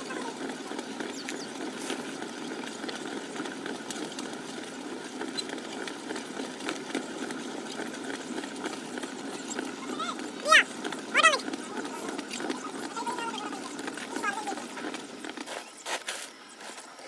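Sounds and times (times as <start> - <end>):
potter's wheel humming: 0.0 - 15.8.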